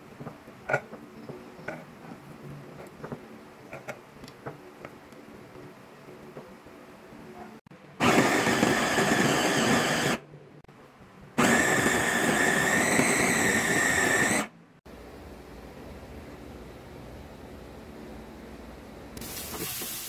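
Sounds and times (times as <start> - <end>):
food chopper motor whining: 8.0 - 10.2, 11.4 - 14.5.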